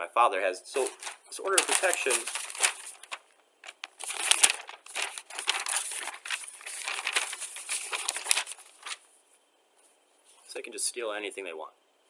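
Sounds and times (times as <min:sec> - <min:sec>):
crinkling handling noise: 0:00.7 - 0:09.1.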